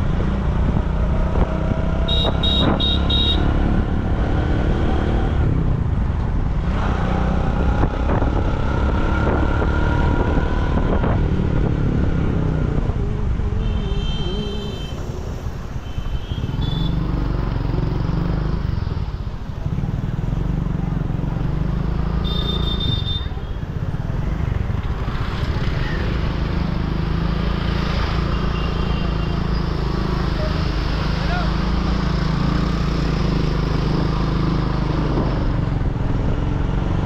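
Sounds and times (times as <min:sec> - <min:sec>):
motorbike engine and road rumble: 0:00.0 - 0:37.0.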